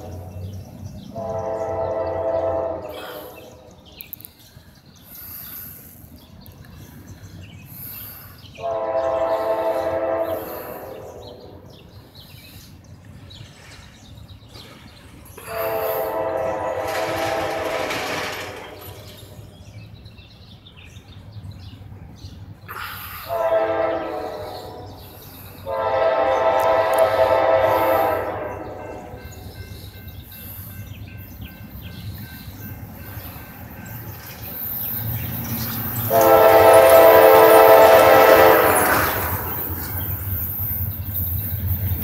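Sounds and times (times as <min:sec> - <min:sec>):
train rumbling: 0:00.0 - 0:42.0
locomotive air horn blasts: 0:01.1 - 0:03.7, 0:08.6 - 0:11.6, 0:15.4 - 0:17.9, 0:23.2 - 0:29.2, 0:36.1 - 0:39.2.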